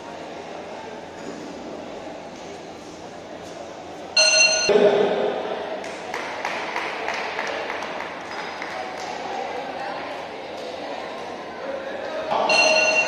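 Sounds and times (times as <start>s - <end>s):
boxing bell ringing: 4.2s - 4.8s, 12.5s - 13.0s
scattered clapping: 5.8s - 9.5s.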